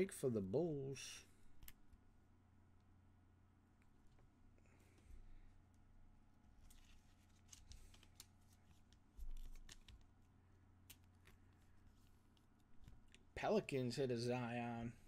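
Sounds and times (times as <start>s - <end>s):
trading cards rustling: 6.5s - 13.4s.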